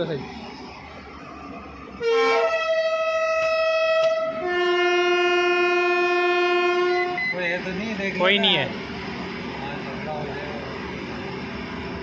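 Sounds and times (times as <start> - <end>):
machine horn notes: 2.0 - 7.4.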